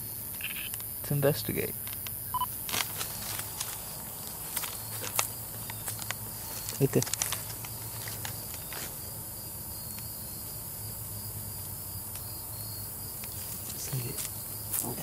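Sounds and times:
crickets chirping: 0.0s - 15.0s
stick rustling dry grass: 2.6s - 9.1s, 13.2s - 15.0s.

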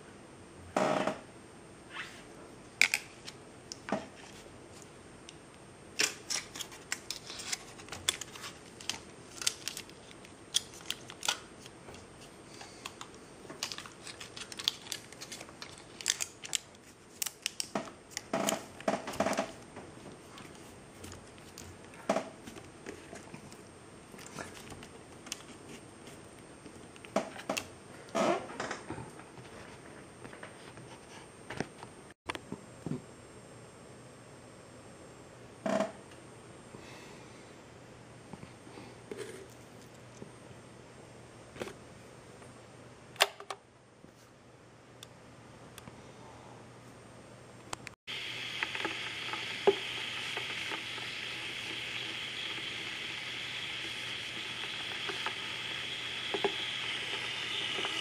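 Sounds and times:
clear tape crinkling: 6.0s - 18.7s, 48.5s - 58.0s
wires being handled: 6.0s - 27.7s.

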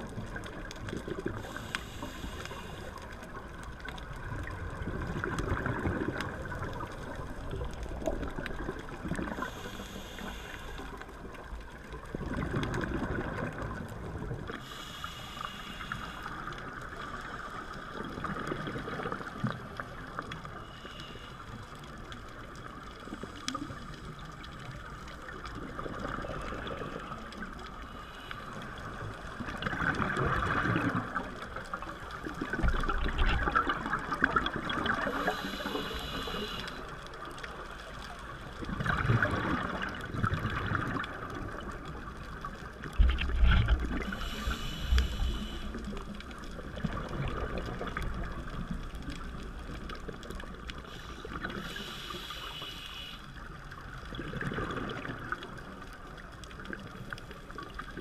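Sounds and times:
exhaled bubbles underwater: 0.0s - 10.2s, 11.1s - 14.8s, 16.3s - 20.5s, 22.2s - 27.9s, 28.5s - 52.3s, 53.4s - 58.0s
regulator hissing inhale: 1.4s - 3.1s, 9.3s - 11.0s, 14.6s - 17.8s, 20.5s - 21.7s, 27.8s - 29.0s, 34.9s - 36.9s, 44.0s - 46.0s, 50.8s - 53.4s.

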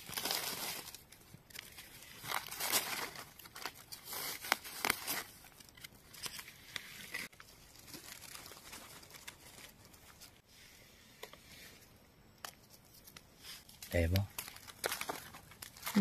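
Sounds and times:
dry leaves rustling and crinkling: 0.0s - 5.9s, 7.6s - 10.1s, 14.0s - 16.0s.

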